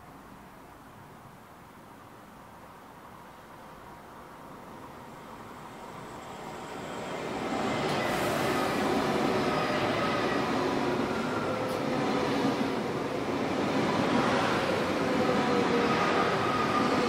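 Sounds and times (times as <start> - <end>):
train wheels on rails: 4.8 - 17.0
brief hiss: 7.8 - 9.0.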